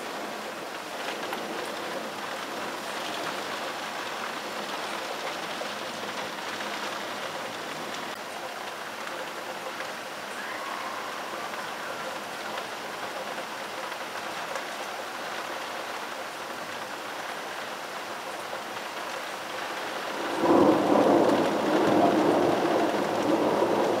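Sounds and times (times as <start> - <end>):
steady rain: 0.0 - 24.0
rolling thunder: 20.2 - 24.0.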